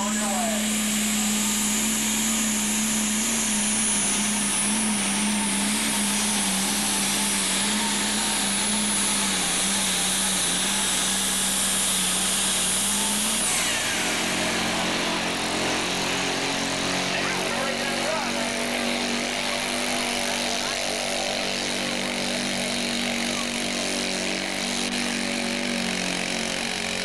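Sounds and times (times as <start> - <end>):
diesel engine running hard: 0.0 - 27.0
high turbo whine: 0.0 - 27.0.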